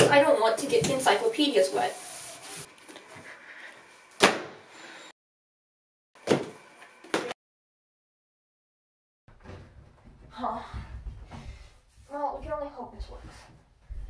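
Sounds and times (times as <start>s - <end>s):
heavy books thumping on stack: 4.2s - 4.6s, 6.2s - 7.4s.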